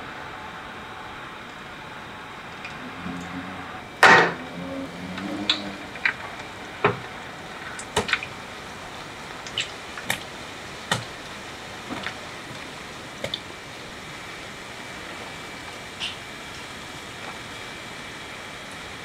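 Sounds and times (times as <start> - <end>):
oil popping and crackling: 3.9 - 19.0
potatoes sizzling in hot oil: 5.1 - 19.0.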